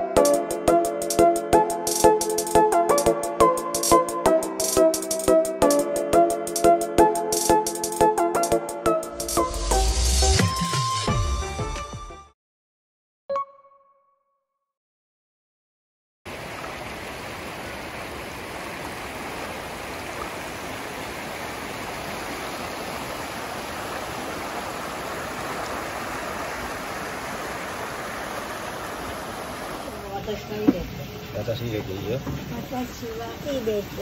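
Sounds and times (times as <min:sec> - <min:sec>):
river rushing over rocks: 0:16.3 - 0:30.6.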